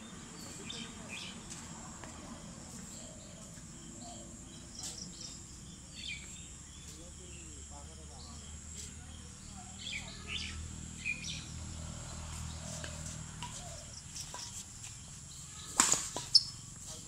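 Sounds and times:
birds chirping: 0:00.0 - 0:17.0
badminton racket striking shuttlecock: 0:15.7 - 0:16.5.

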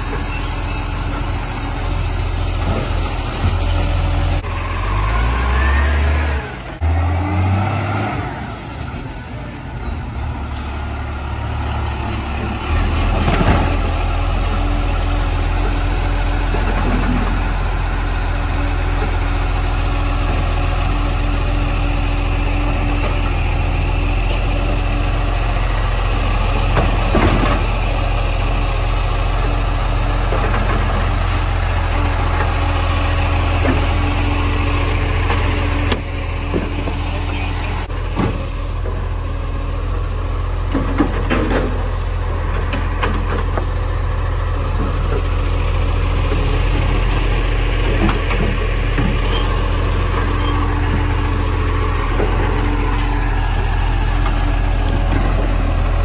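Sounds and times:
garbage truck diesel engine running: 0:00.0 - 0:07.0, 0:08.4 - 0:56.0
knocks and clunks of bins: 0:13.0 - 0:13.9, 0:26.7 - 0:27.8, 0:38.0 - 0:39.0, 0:40.7 - 0:41.9.

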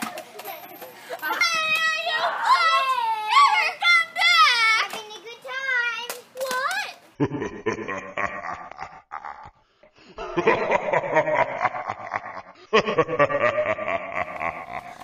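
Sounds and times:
laughter: 0:07.2 - 0:15.0.

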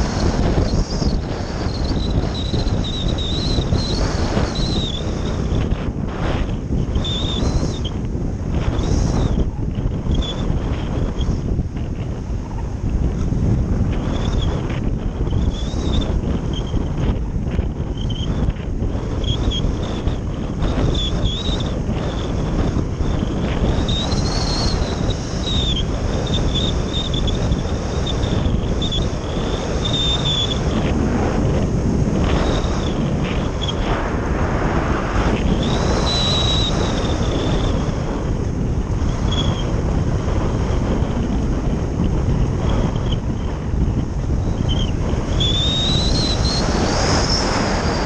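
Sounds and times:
wind rushing over microphone: 0:00.0 - 0:48.0
faint high whistle: 0:29.8 - 0:30.6, 0:35.6 - 0:37.7, 0:44.5 - 0:48.0.

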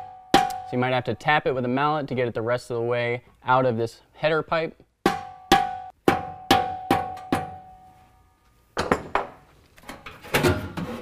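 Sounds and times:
mallet striking ringing metal pipe: 0:00.0 - 0:00.7, 0:05.1 - 0:07.8
metal knocks and clunks: 0:08.8 - 0:11.0.

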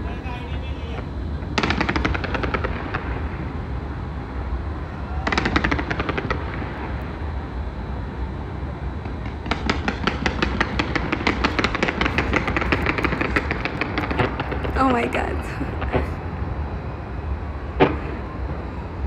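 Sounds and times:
fireworks popping in volleys: 0:09.1 - 0:14.9.

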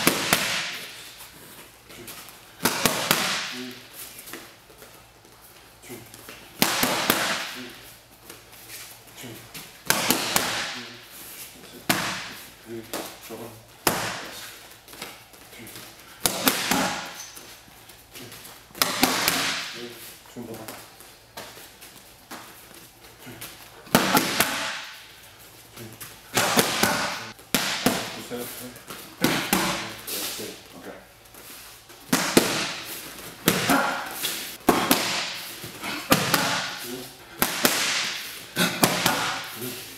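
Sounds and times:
boxing gloves smacking mitts: 0:00.0 - 0:04.4, 0:06.2 - 0:07.6, 0:09.6 - 0:10.8, 0:11.8 - 0:13.2, 0:13.8 - 0:17.5, 0:18.2 - 0:19.8, 0:23.2 - 0:25.2, 0:26.3 - 0:30.2, 0:32.0 - 0:39.6
boxing gloves smacking focus mitts: 0:32.0 - 0:39.6.

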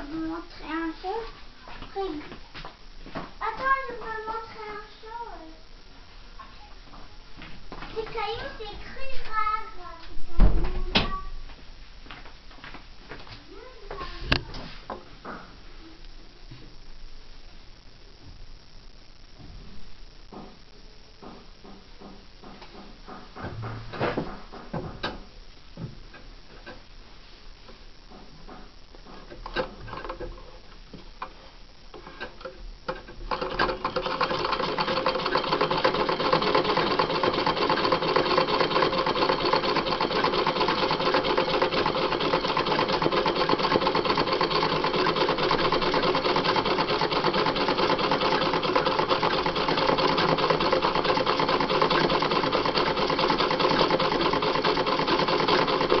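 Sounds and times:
sewing machine running: 0:33.2 - 0:56.0.

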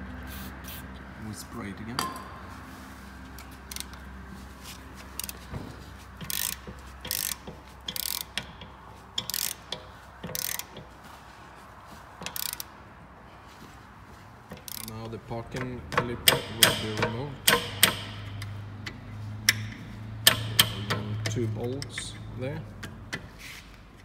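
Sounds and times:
ratchet wrench clicking: 0:03.4 - 0:04.0, 0:05.1 - 0:05.4, 0:06.2 - 0:10.9, 0:12.2 - 0:12.7, 0:14.5 - 0:15.1, 0:15.9 - 0:22.2.

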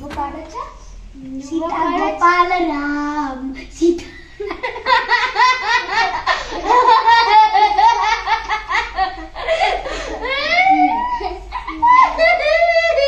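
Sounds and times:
people laughing: 0:04.0 - 0:13.0.

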